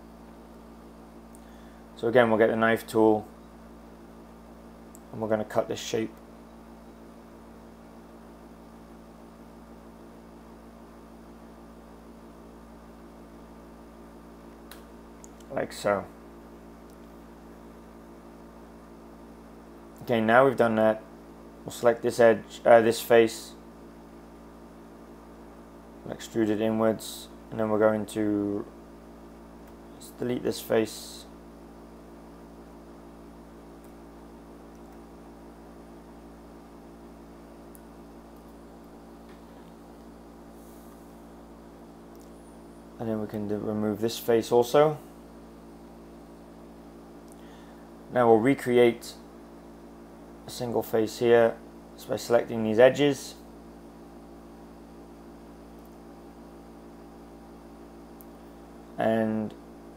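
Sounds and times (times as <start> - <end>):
low electrical hum: 0.0 - 59.9.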